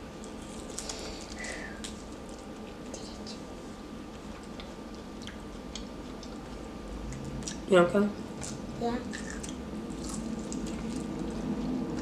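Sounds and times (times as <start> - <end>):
low room hum: 0.0 - 12.0
wet chewing and lip-smacking: 4.3 - 7.6, 8.4 - 12.0.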